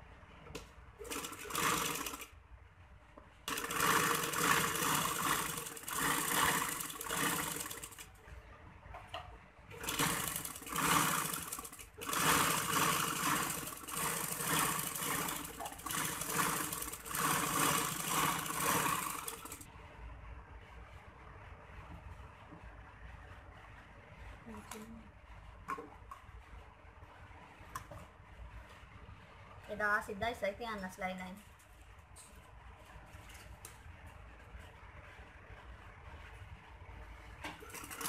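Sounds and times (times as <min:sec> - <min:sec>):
sewing machine stitching: 0:01.0 - 0:02.3, 0:03.5 - 0:08.2, 0:09.8 - 0:19.7, 0:37.5 - 0:38.0.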